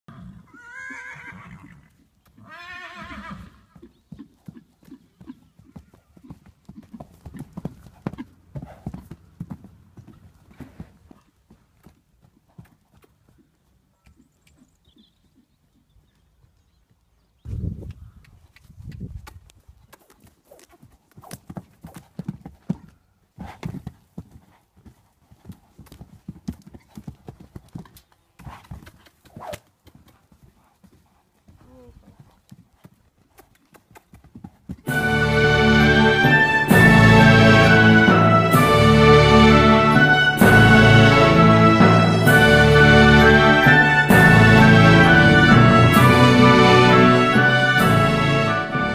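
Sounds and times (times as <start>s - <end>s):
horse whinnying: 0.1s - 3.8s
hoofbeats on sand: 3.7s - 13.6s, 17.9s - 35.0s.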